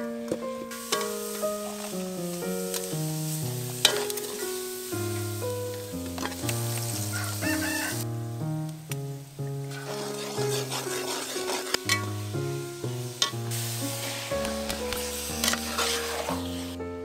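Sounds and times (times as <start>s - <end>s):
background music: 0.0s - 17.0s
paste sizzling in oil: 0.6s - 8.0s, 9.0s - 16.8s
rooster crowing: 7.1s - 8.1s.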